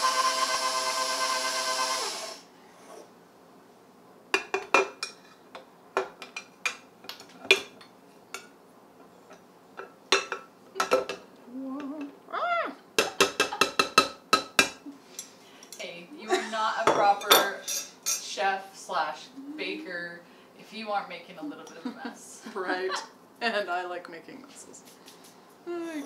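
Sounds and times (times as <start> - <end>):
stand mixer motor humming: 0.0 - 2.4.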